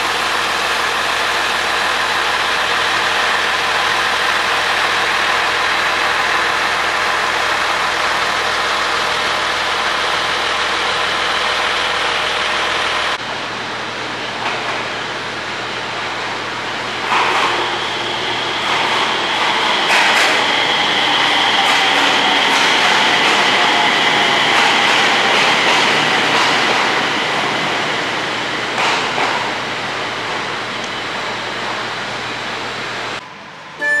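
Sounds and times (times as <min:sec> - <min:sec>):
diesel engine idling: 0:00.0 - 0:13.3
electric train pulling in: 0:00.0 - 0:34.0
high-pitched tones: 0:33.8 - 0:34.0.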